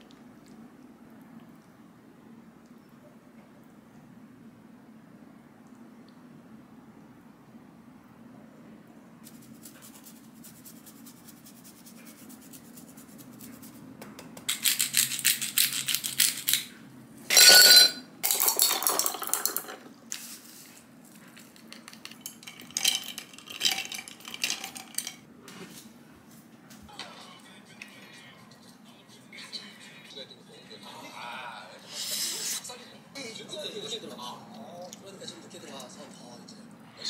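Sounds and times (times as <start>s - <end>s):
pepper mill grinding: 14.5s - 16.7s, 17.3s - 20.3s, 21.4s - 25.2s.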